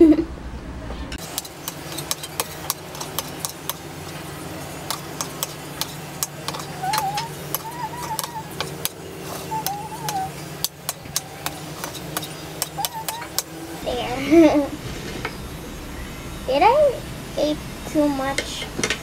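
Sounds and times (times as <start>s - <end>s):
steady low hum: 0.0s - 19.0s
cutlery scraping a plate: 1.2s - 4.2s, 4.9s - 9.7s, 10.6s - 13.5s.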